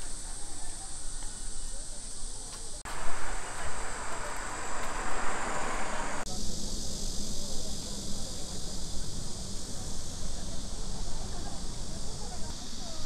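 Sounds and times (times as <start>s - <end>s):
insects chorus: 0.0s - 13.0s
rushing noise: 2.8s - 7.4s.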